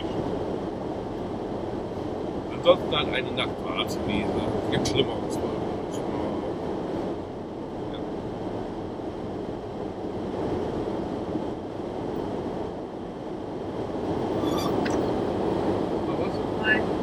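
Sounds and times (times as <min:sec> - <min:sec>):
car cabin rumble while driving: 0:00.0 - 0:17.0.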